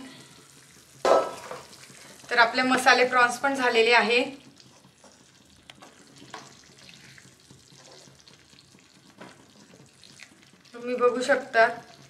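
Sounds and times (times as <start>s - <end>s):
faint sizzling: 0.0s - 12.0s
spatula stirring thick gravy: 4.1s - 12.0s
spatula scraping and tapping pan: 4.6s - 10.4s.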